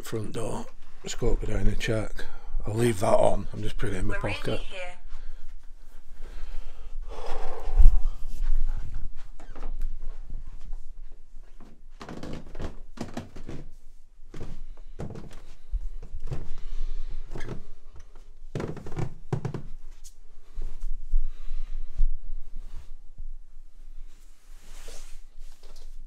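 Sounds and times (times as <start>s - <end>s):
footsteps going down stairs: 7.1s - 22.8s.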